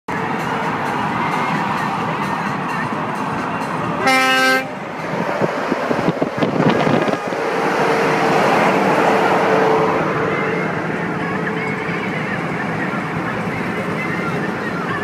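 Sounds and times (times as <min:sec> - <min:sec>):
horn blast: 0:04.0 - 0:04.8
lorry passing at speed: 0:04.7 - 0:14.6.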